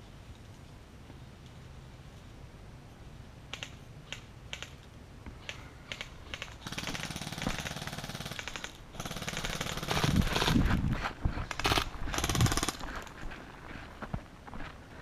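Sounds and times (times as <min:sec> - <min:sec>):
footsteps crunching on dry grass: 0:10.0 - 0:15.0.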